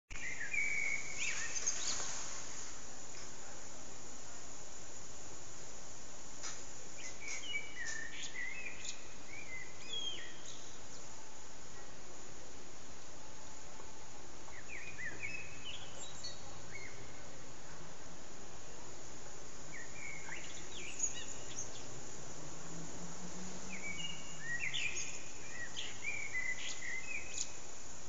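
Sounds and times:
blackbird singing: 0.1s - 2.0s, 7.0s - 11.1s, 14.5s - 17.2s, 19.7s - 22.4s, 23.7s - 27.6s
steady hiss: 0.1s - 28.0s.

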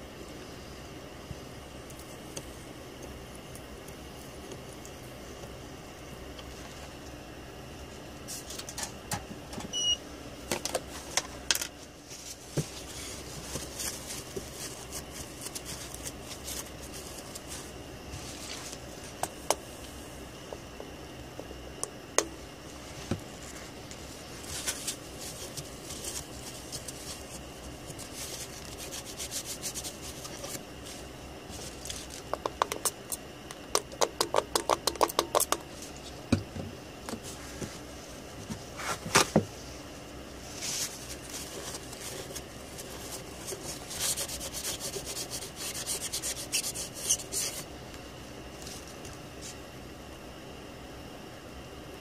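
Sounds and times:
cloth scrubbing chip: 40.6s - 47.7s.

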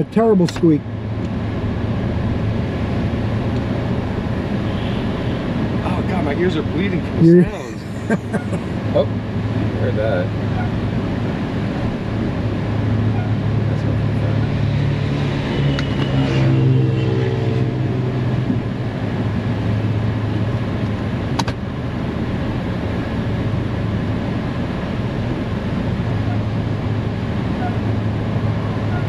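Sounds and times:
car engine running at low speed: 5.5s - 16.4s, 17.5s - 29.0s
sharp click: 21.4s - 21.6s.

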